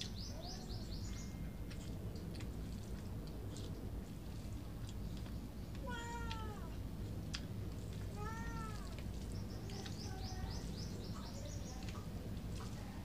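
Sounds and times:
cat meowing: 5.8s - 6.8s, 8.1s - 9.0s.

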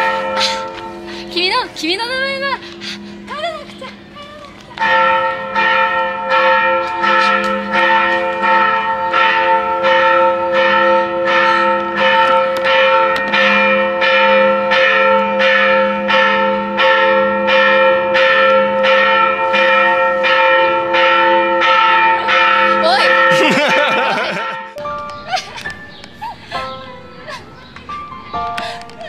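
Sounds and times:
church bells ringing: 0.0s - 29.0s.

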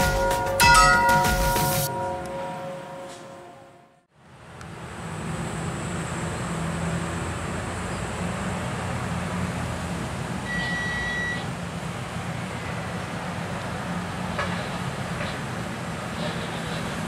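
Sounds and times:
high tone: 0.0s - 4.0s
traffic noise: 0.0s - 17.0s.

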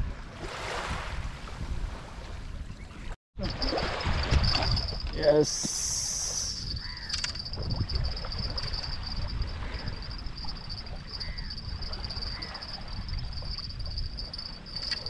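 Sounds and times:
crickets trilling: 3.4s - 15.0s.

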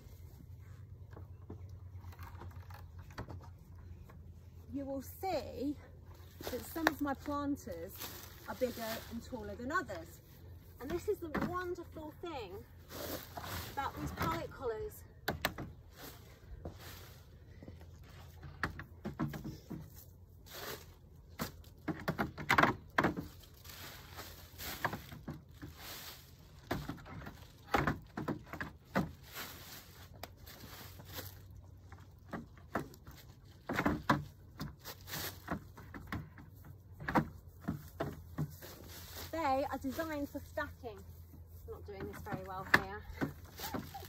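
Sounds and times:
crunching and rustling leaves: 6.1s - 11.1s, 12.0s - 14.9s, 15.8s - 18.3s, 20.0s - 36.6s, 37.6s - 42.5s, 43.3s - 44.0s.

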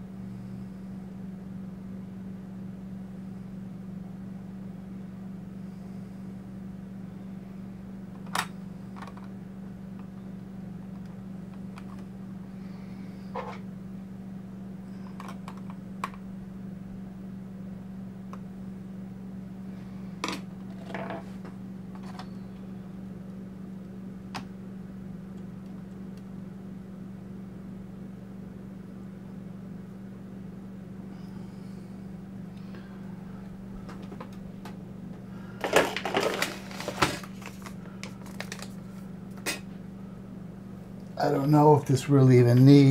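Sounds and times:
steady low hum: 0.0s - 42.9s
clicks and taps handling computer parts: 15.2s - 16.2s.

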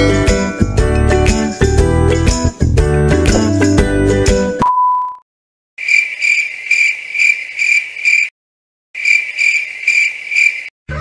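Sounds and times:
crickets chirping: 5.8s - 8.3s, 9.0s - 10.7s.

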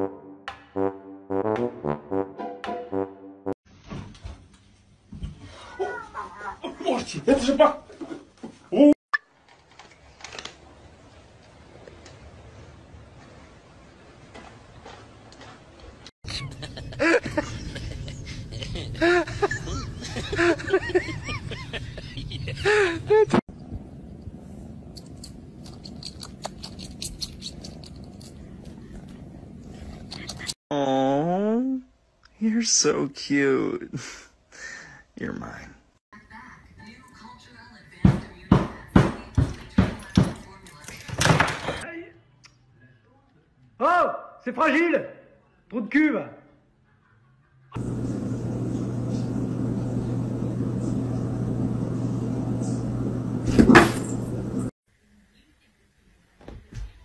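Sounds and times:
low mechanical hum: 47.8s - 54.7s.

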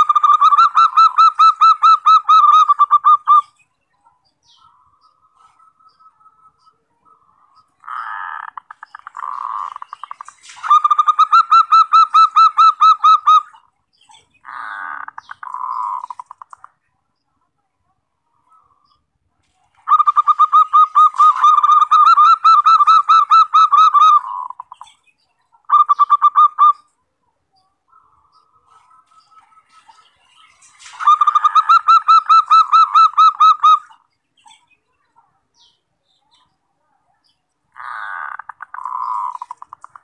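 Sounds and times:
dove cooing: 19.8s - 24.8s, 30.9s - 34.0s, 37.8s - 40.0s.

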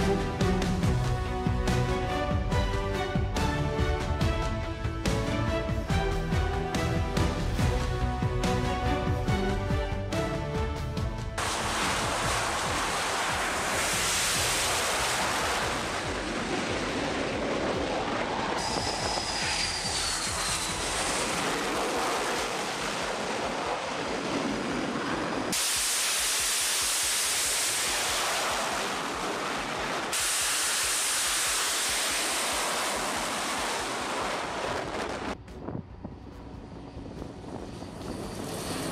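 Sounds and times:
jet engine noise: 11.2s - 38.9s
falling whine of passing jet: 11.4s - 35.4s.

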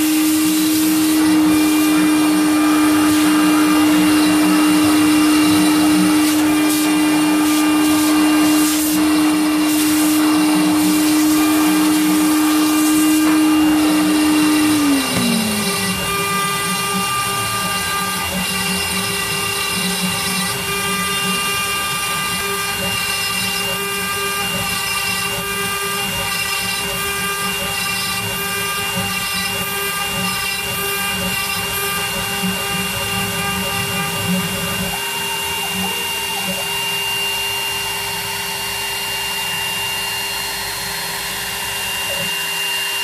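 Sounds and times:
low wood cutting noise: 0.0s - 43.0s
router spindle whine: 0.0s - 43.0s.

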